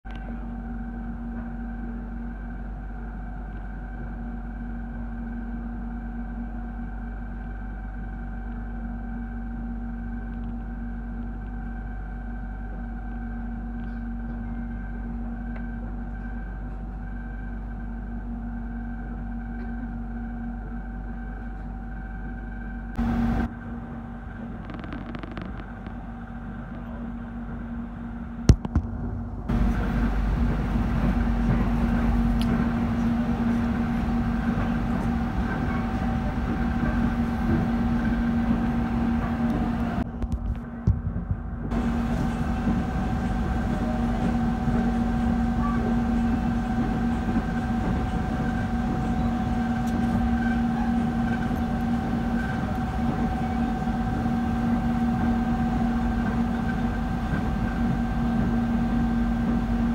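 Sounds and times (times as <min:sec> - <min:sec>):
even hum: 0:00.1 - 0:59.9
low train rumble: 0:00.1 - 0:59.9.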